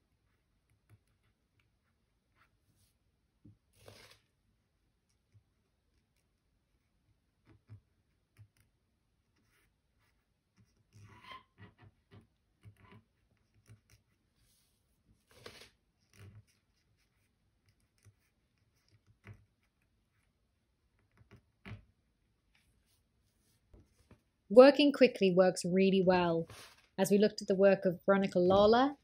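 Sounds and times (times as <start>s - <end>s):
twig scratching and tapping on paper: 15.4s - 20.2s.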